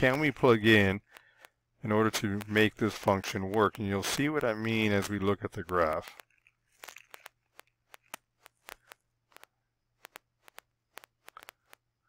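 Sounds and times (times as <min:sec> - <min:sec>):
mouse scroll wheel clicks: 0:05.7 - 0:11.8.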